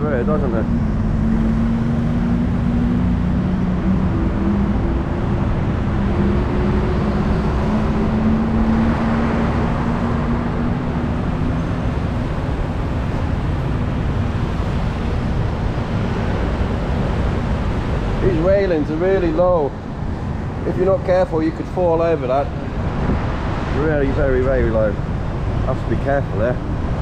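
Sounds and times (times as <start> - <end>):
vehicle passing: 0.0 - 21.0
vehicle engines running: 0.0 - 27.0.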